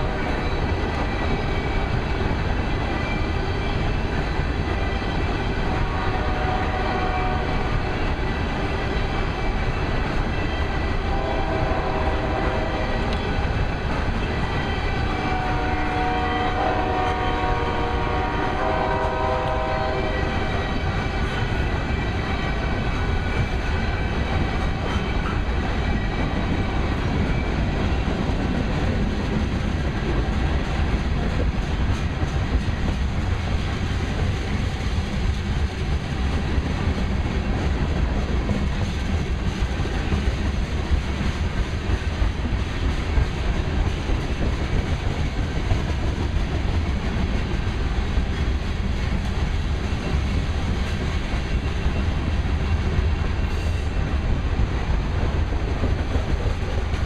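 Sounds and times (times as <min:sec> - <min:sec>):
steel wheels clattering on rails: 0:00.0 - 0:57.0
multi-tone train horn blasts: 0:05.6 - 0:07.8, 0:11.0 - 0:13.2, 0:15.1 - 0:20.7.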